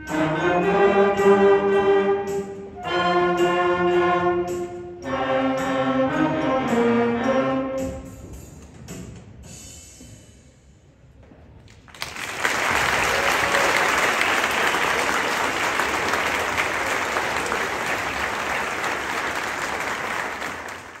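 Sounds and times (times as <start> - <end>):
audience applauding: 11.7 - 21.0.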